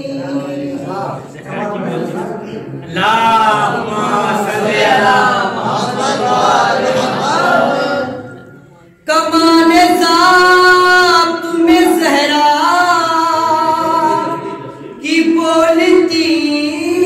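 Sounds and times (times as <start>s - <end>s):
man singing into a microphone: 9.1s - 17.0s.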